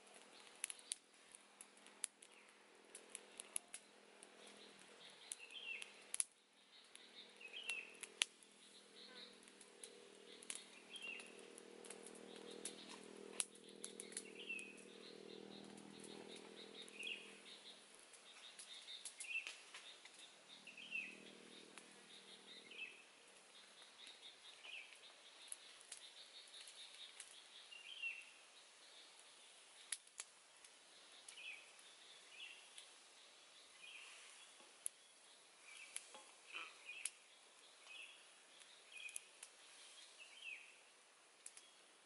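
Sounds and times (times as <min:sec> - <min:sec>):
sharp clicks and crackles: 0:00.0 - 0:27.4, 0:29.2 - 0:31.4, 0:41.4 - 0:41.7
bird chirping: 0:03.3 - 0:30.0, 0:30.9 - 0:40.8
low hum: 0:07.1 - 0:17.8, 0:20.5 - 0:23.0.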